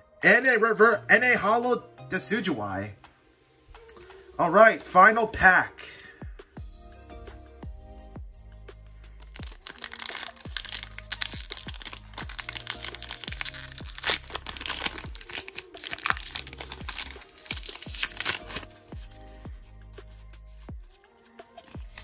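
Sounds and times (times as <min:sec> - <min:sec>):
background music with a beat: 0:06.1 - 0:15.4, 0:16.1 - 0:22.0
foil wrapper crinkling and tearing: 0:09.2 - 0:19.2, 0:20.1 - 0:22.0.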